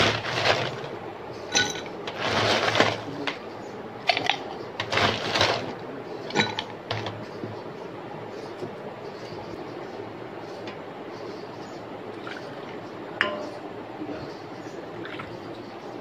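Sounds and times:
ice cubes clinking into cups: 0.0 - 0.9, 1.5 - 3.4, 4.1 - 7.1.

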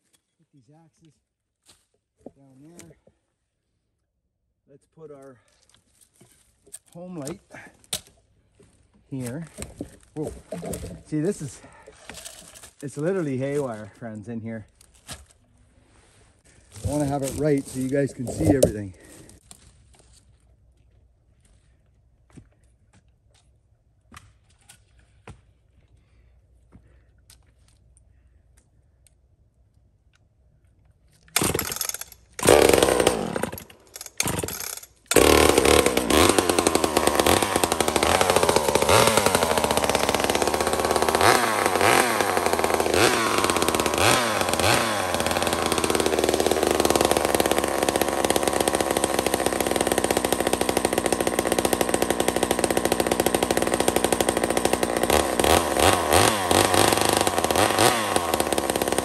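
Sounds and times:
chainsaw starting and revving: 10.3 - 13.8, 16.7 - 19.4, 31.4 - 59.0.

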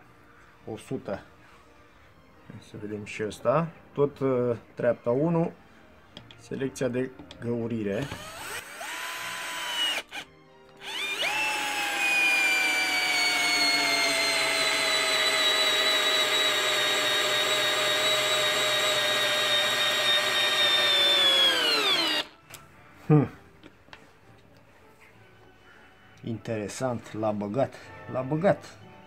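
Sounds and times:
cordless drill motor whining: 8.0 - 22.4.

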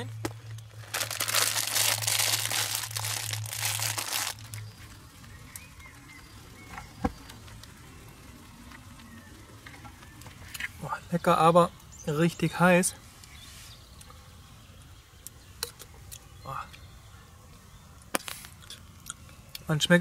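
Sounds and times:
plastic food packet crinkling: 0.7 - 4.7.

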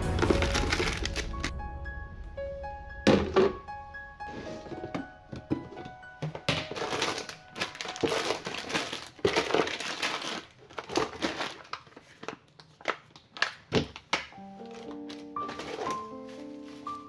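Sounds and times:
plastic packaging crinkling: 0.0 - 1.5, 4.7 - 17.0.

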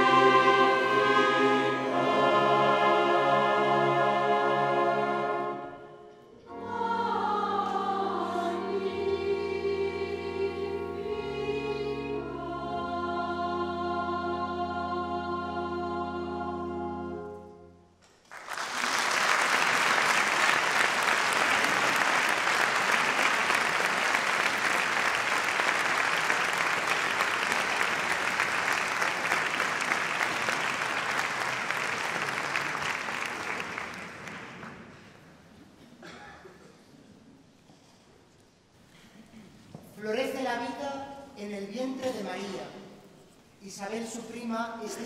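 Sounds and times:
choir singing chord: 0.0 - 17.8
audience applause: 18.3 - 35.0.

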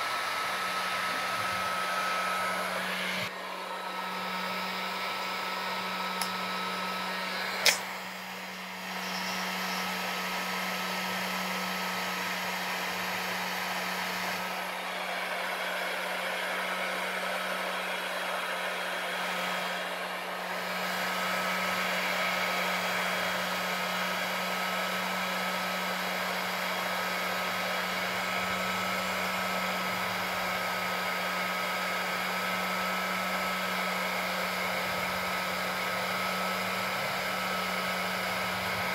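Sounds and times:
heat gun blowing: 0.0 - 38.9
sharp click: 7.6 - 7.9.

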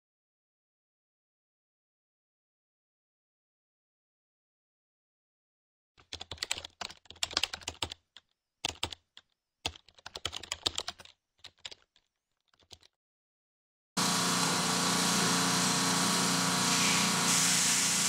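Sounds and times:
computer keyboard typing: 6.0 - 12.9.

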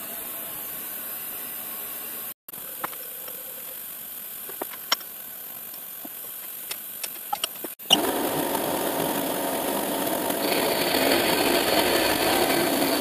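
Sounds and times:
stepper motor hiss: 0.0 - 13.0
sharp metal clicks: 4.5 - 7.8.

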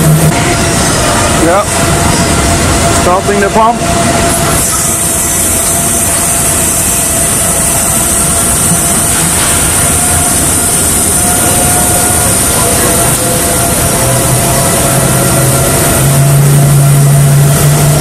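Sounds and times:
constant machine whine: 0.0 - 18.0
hydraulic pump machinery noise: 0.0 - 18.0.

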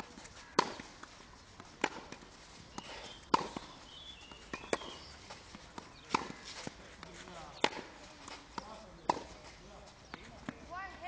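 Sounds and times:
racket hitting tennis ball: 0.0 - 9.6
footsteps on court: 0.0 - 11.0
ball bouncing on court: 2.8 - 5.1.

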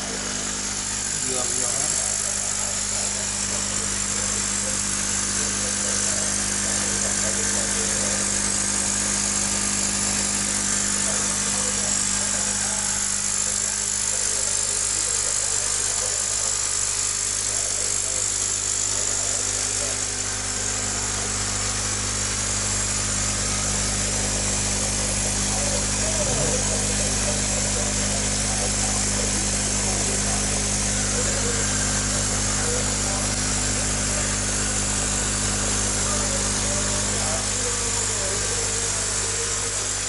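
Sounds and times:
air pump humming and hissing: 0.0 - 40.0.

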